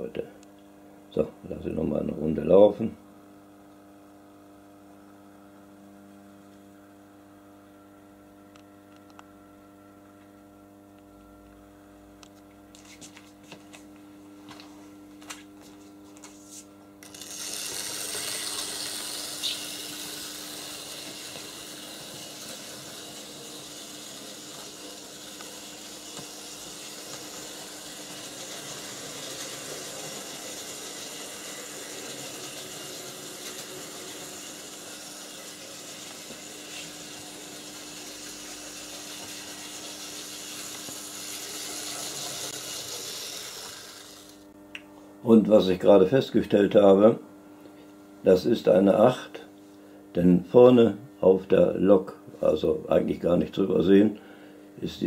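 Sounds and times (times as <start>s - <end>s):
steady hum: 0.0s - 55.0s
model train running on track: 17.1s - 44.2s.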